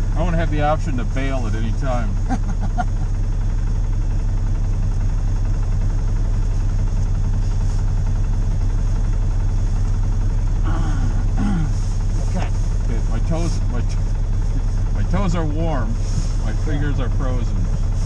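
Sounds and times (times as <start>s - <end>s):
vehicle engine idling: 0.0s - 18.0s.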